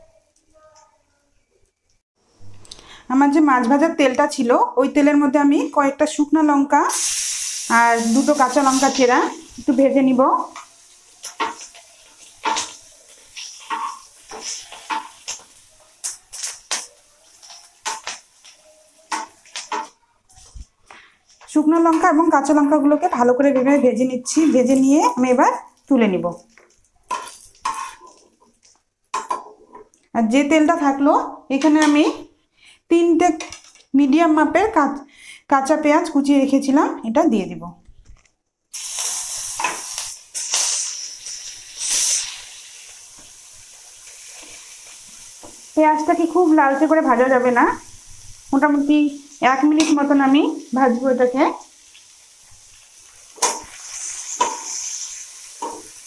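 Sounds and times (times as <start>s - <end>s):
faint oil sizzle: 6.8s - 32.8s, 38.7s - 56.0s
metal spatula scraping frying pan: 11.2s - 15.4s, 27.1s - 28.4s, 53.4s - 56.0s.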